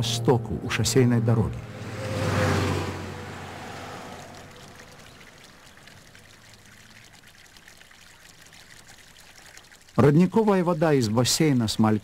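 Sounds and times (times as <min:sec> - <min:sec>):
truck passing: 0:00.0 - 0:07.0
water trickling from pipe: 0:03.1 - 0:12.0.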